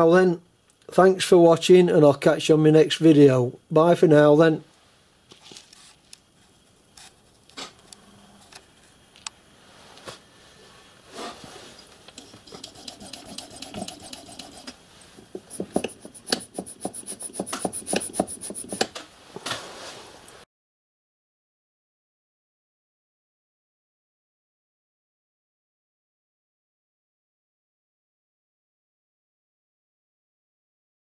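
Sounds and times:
piston scraping in cylinder: 0:12.1 - 0:19.0.

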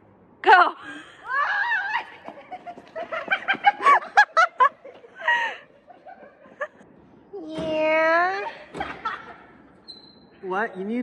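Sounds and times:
laughter: 0:02.1 - 0:06.8, 0:08.5 - 0:09.6
high squeal: 0:09.8 - 0:10.4.

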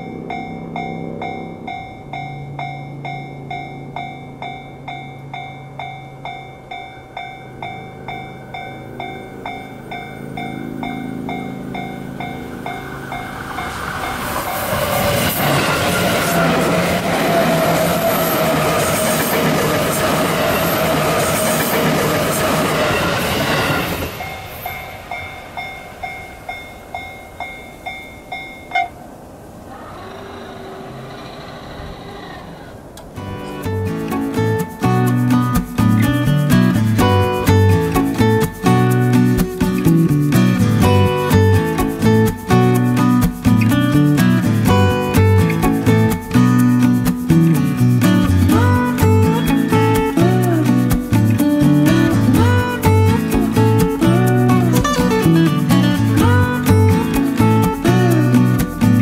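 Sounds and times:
steady low hum: 0:00.0 - 0:15.6
railroad crossing bell clanging: 0:00.0 - 0:39.8
express train passing: 0:00.0 - 0:59.0.

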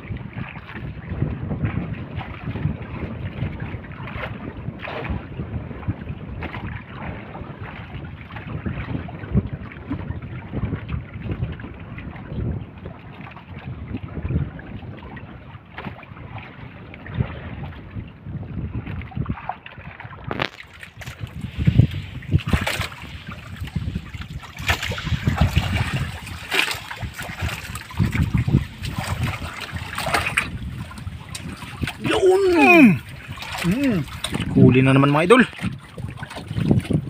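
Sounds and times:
water splashing and sloshing: 0:00.0 - 0:37.0
wind buffeting microphone: 0:00.0 - 0:37.0.

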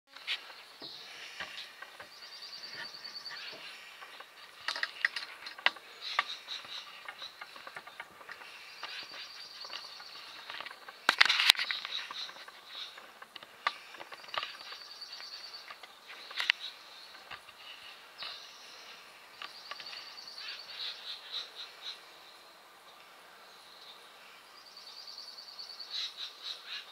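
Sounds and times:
bird pecking at tree trunk: 0:00.2 - 0:17.6.

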